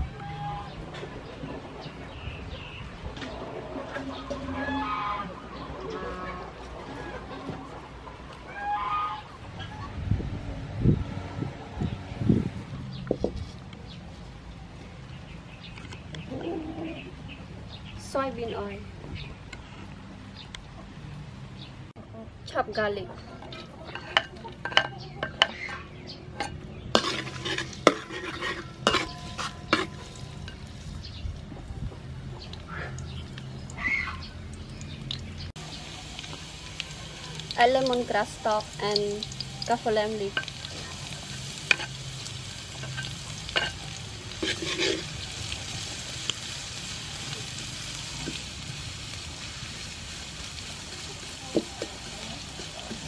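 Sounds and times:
garlic sizzling in oil: 22.7 - 53.0
metal ladle scraping wok: 23.4 - 31.1, 40.1 - 46.1.

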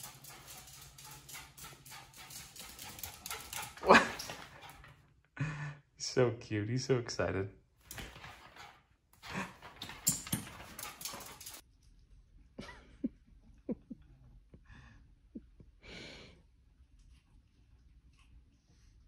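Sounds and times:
dog scuffling and breathing: 7.9 - 11.6.

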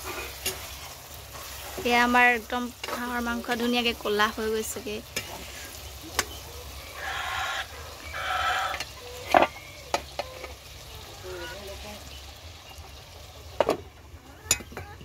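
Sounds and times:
metal spatula scraping wok: 0.0 - 3.9, 5.0 - 5.9
meat sizzling: 0.0 - 15.0.

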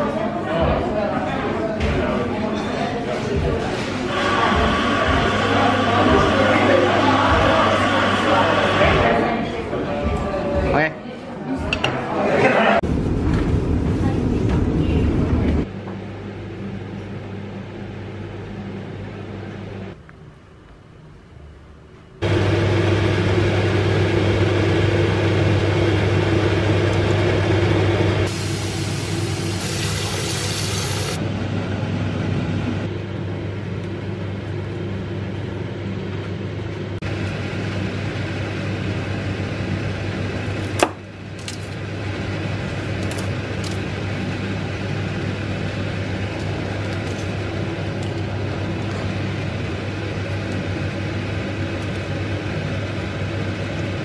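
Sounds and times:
kitchen appliance humming: 4.1 - 9.2, 22.2 - 54.0
water boiling in a saucepan: 28.2 - 31.2.

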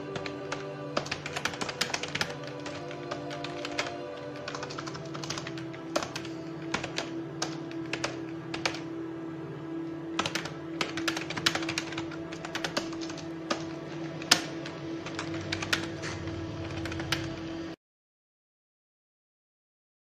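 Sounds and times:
computer keyboard typing: 0.0 - 8.9, 10.2 - 17.6
organ music drone: 0.0 - 17.8.

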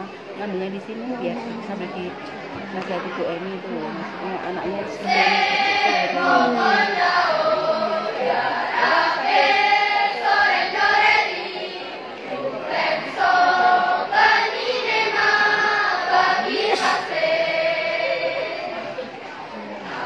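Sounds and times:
choir singing sustained chords: 4.6 - 20.0.

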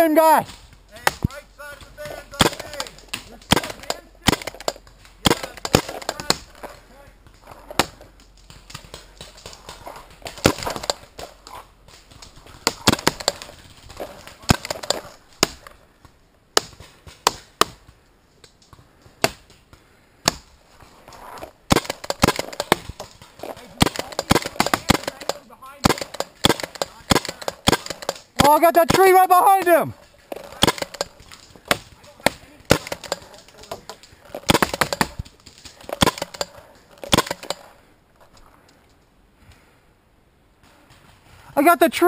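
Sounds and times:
paintball markers firing: 0.4 - 6.7, 11.9 - 15.7, 21.7 - 37.8.

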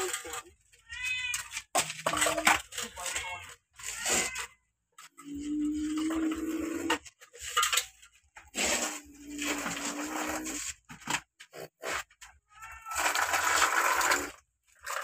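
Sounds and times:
plastic scraping on sand: 8.4 - 12.2, 12.8 - 15.0.

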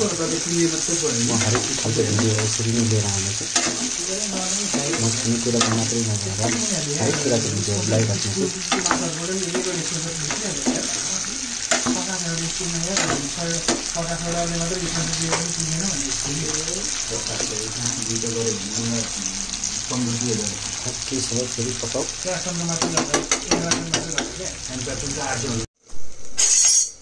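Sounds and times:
curry sizzling in a frying pan: 0.0 - 25.9
metal spatula scraping a pan: 0.3 - 12.1.

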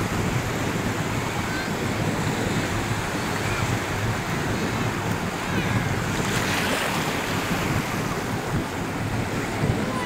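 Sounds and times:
choppy sea surf: 0.0 - 10.0
wind buffeting microphone: 0.0 - 10.0.

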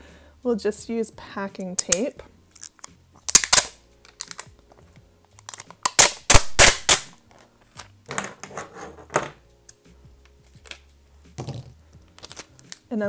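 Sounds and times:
handling tape strip: 1.6 - 4.7, 5.3 - 7.9, 12.0 - 12.9
packing tape ripping off roll: 2.6 - 4.6, 5.4 - 7.2, 12.1 - 12.9.

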